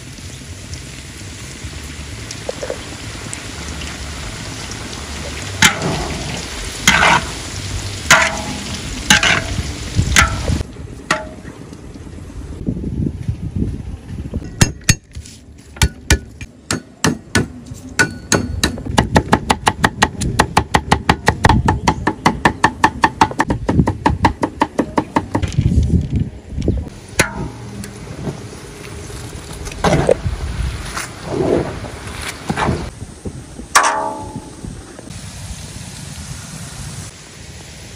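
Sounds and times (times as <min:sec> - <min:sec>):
oil sizzling in a wok: 0:00.0 - 0:10.7, 0:34.4 - 0:37.9.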